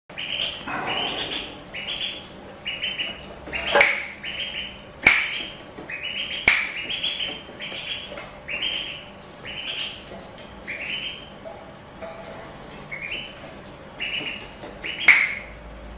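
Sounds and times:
duckling peeping: 0.1s - 11.7s, 12.8s - 15.6s
finger snaps: 6.5s - 6.7s.

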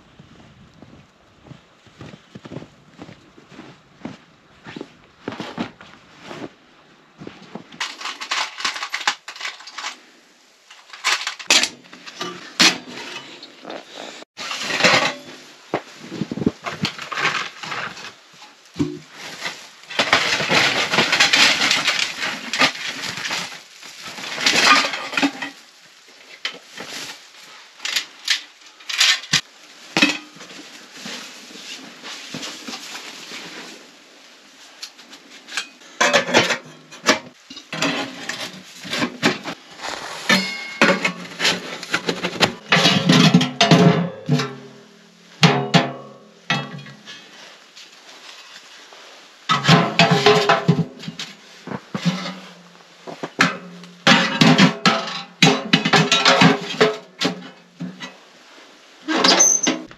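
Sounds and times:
sack rustling: 38.5s - 42.7s.

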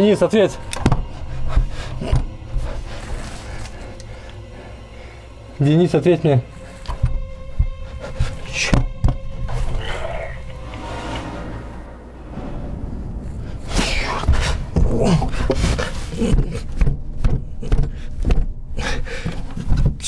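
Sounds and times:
low rumble: 7.1s - 18.8s.

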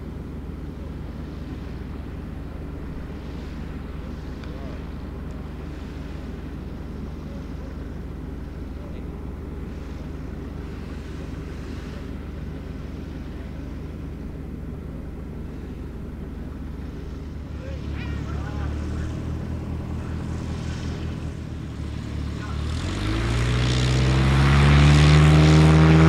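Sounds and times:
aircraft engine idling: 0.0s - 26.0s.

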